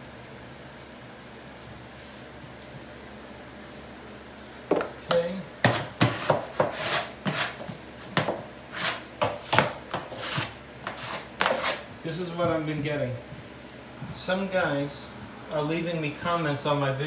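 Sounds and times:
hand rubbing wallpaper: 1.8 - 2.4.

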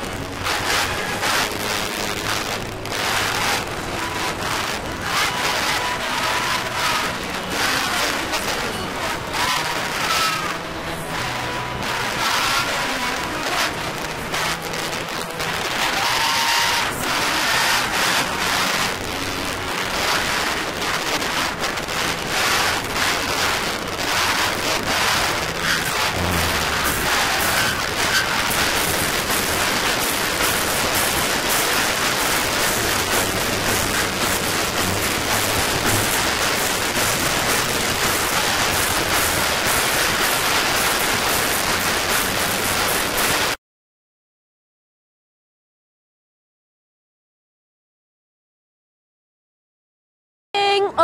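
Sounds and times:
distorted live band playing: 0.0 - 43.6.

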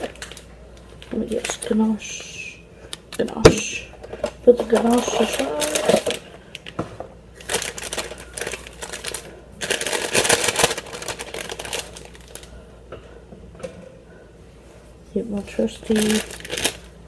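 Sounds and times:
plastic bag crinkling: 0.0 - 2.3, 3.1 - 12.6, 15.4 - 17.0.

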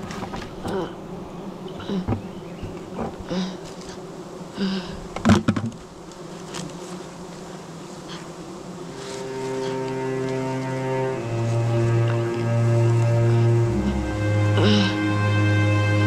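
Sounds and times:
bees buzzing: 0.0 - 16.0
music: 9.6 - 16.0.

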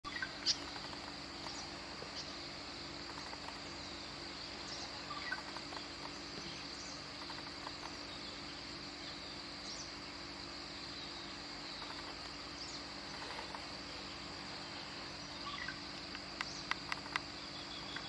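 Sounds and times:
faint low hum: 0.0 - 18.0
insect drone: 0.0 - 18.0
bird chirps: 3.0 - 10.0, 10.8 - 18.0.

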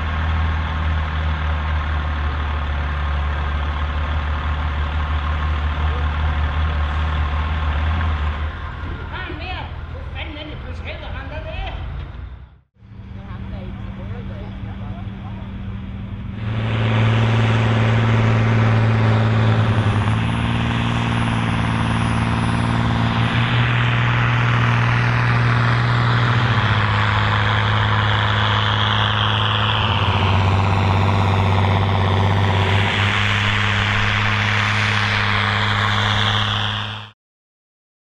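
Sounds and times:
tractor engine droning: 0.0 - 37.2
high falling whine: 12.3 - 37.2.

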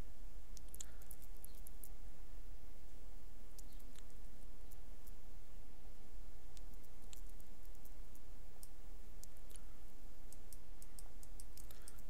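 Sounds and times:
electrical hum and hiss: 0.0 - 12.0
computer mouse clicking: 0.6 - 1.9, 3.6 - 5.2, 6.6 - 9.6, 10.3 - 12.0.

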